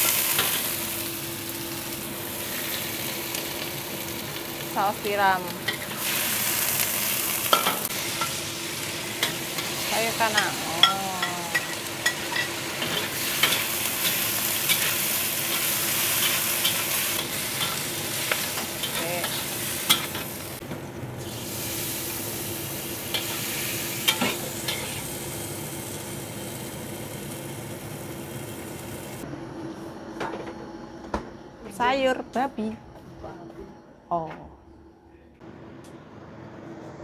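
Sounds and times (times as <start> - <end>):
food sizzling in a pan: 0.0 - 20.6, 21.2 - 29.2.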